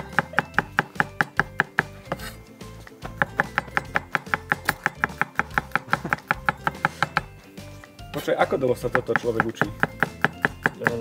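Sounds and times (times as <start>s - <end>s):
knife chopping on cutting board: 0.0s - 2.4s, 3.1s - 7.3s, 8.8s - 11.0s
background music: 0.0s - 11.0s.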